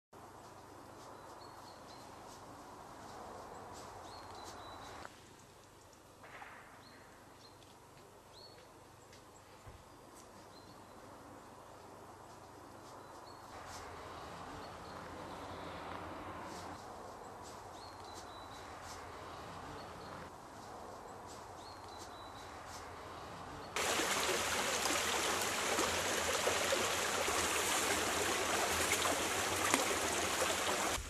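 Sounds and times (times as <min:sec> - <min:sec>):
steady hiss: 0:23.8 - 0:31.0.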